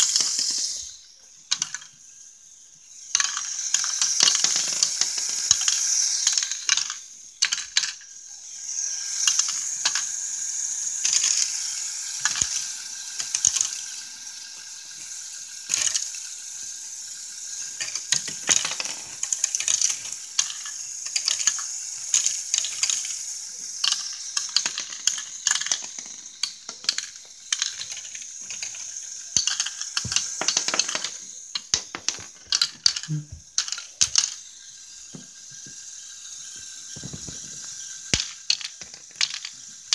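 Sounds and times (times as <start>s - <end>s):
plastic parts clicking and rattling: 0.0s - 2.1s, 3.1s - 39.9s.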